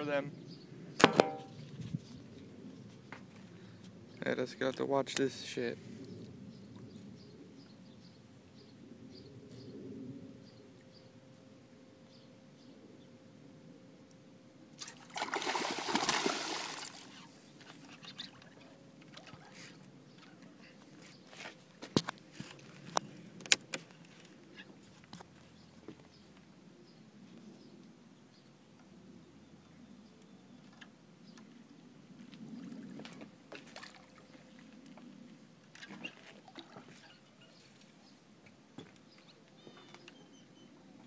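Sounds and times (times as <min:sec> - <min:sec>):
fish splashing in water: 0:14.8 - 0:17.2, 0:33.5 - 0:34.7.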